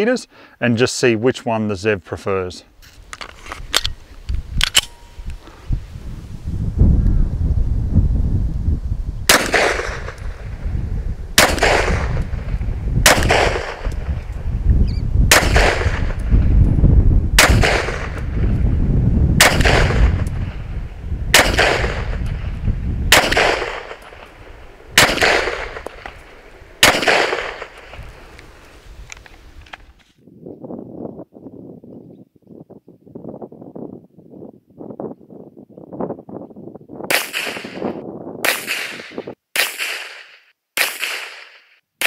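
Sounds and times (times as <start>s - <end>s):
pistol shots with echo: 9.3s - 10.2s, 11.4s - 12.3s, 13.0s - 14.0s, 15.3s - 16.2s, 17.4s - 18.2s, 19.4s - 20.2s, 21.3s - 22.3s, 23.1s - 28.0s, 37.1s - 41.6s.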